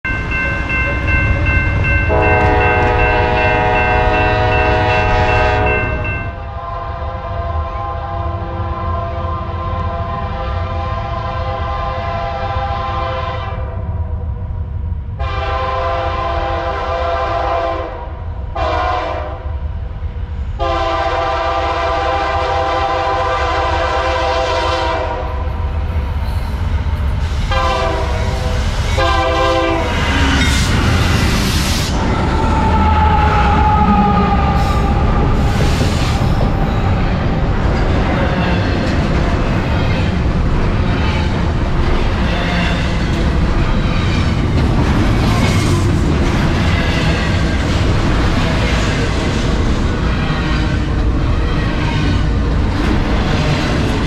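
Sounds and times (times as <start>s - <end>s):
locomotive air horn blasts: 2.1s - 13.8s, 15.2s - 19.4s, 20.6s - 25.4s, 27.5s - 30.1s.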